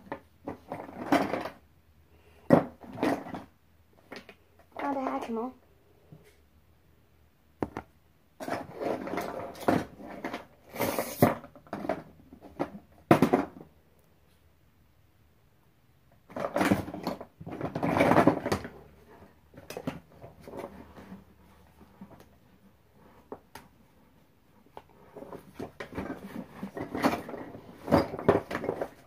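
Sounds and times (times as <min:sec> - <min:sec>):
plastic toys rustling and clicking: 0:00.0 - 0:01.7, 0:02.5 - 0:05.3, 0:08.4 - 0:13.7, 0:16.2 - 0:23.9, 0:24.5 - 0:29.0.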